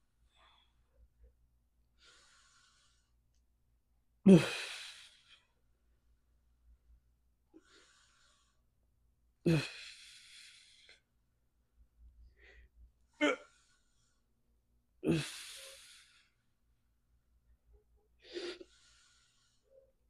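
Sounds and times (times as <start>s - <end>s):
quiet breaths: 0.0s - 3.5s, 7.4s - 11.1s, 11.8s - 16.6s, 17.4s - 20.0s
man exhaling with groan: 4.3s - 5.1s, 9.5s - 10.1s, 13.2s - 13.5s, 15.1s - 15.6s.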